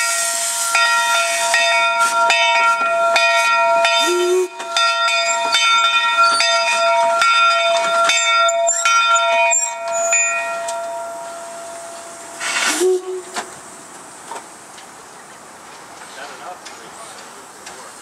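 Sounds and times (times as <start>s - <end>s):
locomotive bell ringing: 0.0s - 13.2s
short steam hiss: 0.1s - 0.8s, 12.3s - 13.9s.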